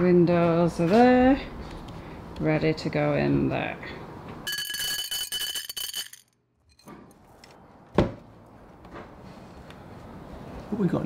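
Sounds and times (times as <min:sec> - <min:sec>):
metal screws clinking in clay dish: 0:04.5 - 0:06.9.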